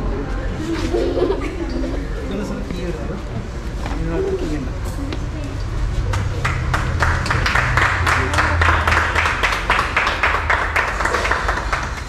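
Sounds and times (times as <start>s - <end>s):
people clapping: 5.9s - 12.0s.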